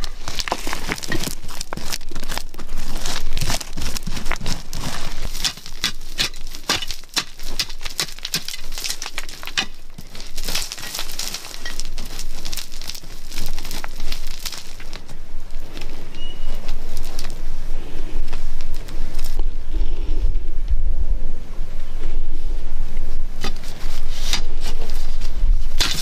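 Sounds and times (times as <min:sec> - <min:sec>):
hands scraping gritty soil: 0:00.0 - 0:17.4, 0:23.4 - 0:26.0.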